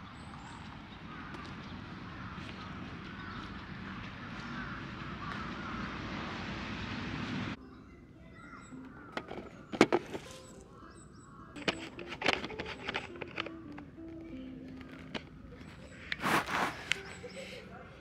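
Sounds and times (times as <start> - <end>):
outdoor noise: 0.0 - 18.0
guitar notes picked: 12.6 - 16.1.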